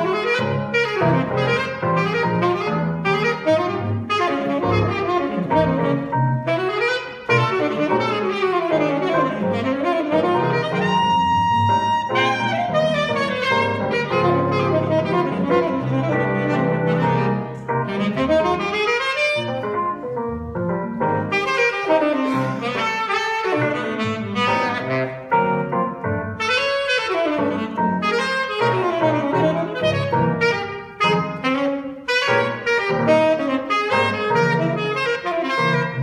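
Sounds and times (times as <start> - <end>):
electric keyboard: 0.0 - 36.0
saxophone melody: 0.0 - 36.0.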